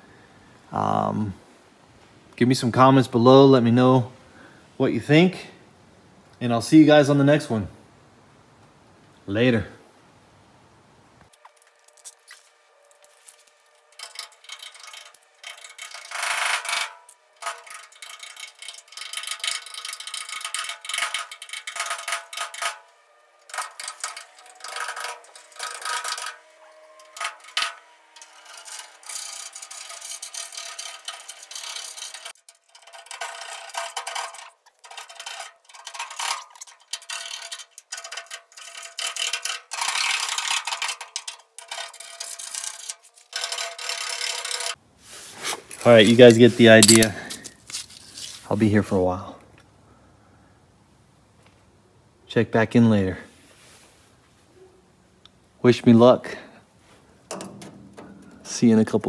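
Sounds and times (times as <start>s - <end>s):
scraping undercoating off metal: 11.3s - 48.5s, 57.0s - 59.0s.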